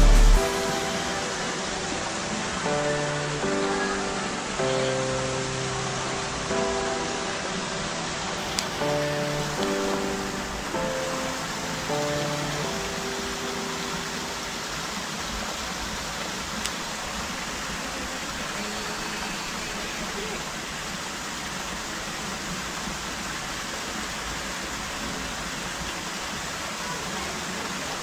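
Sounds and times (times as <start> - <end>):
music: 0.0 - 14.9
running water hissing: 0.0 - 28.0
small click: 8.5 - 8.7.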